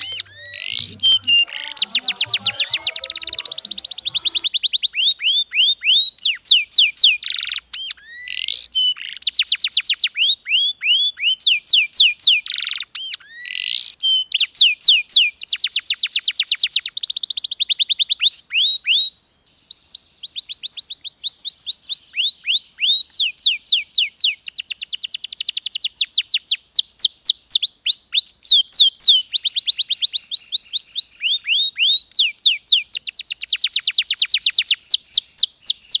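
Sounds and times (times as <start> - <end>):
canary singing trills: 0.0 - 8.4.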